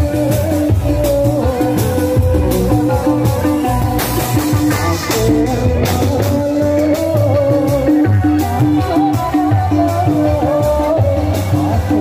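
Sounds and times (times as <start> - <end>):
drum and cymbal beats: 0.0 - 12.0
keyboard melody: 0.0 - 12.0.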